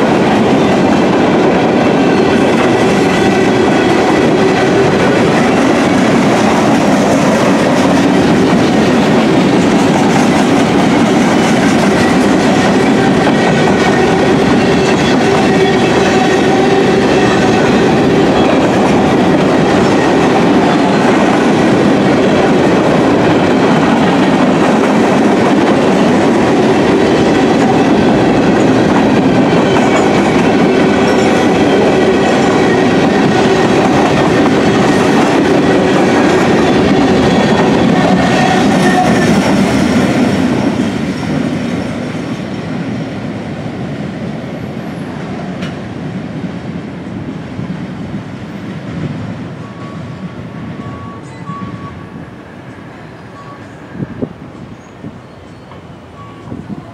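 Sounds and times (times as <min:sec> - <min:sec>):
steel wheels running on rails: 0:00.0 - 0:43.3.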